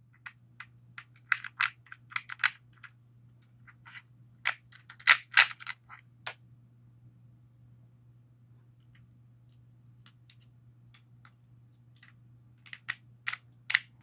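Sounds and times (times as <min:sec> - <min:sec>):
small plastic clicks and taps: 0:12.0 - 0:13.9.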